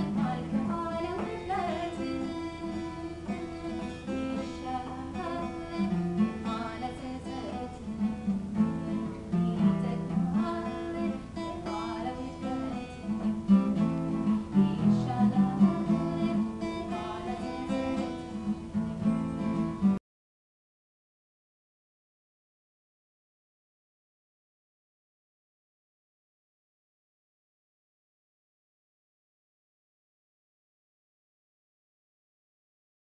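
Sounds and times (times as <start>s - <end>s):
acoustic guitar worship song: 0.0s - 20.0s.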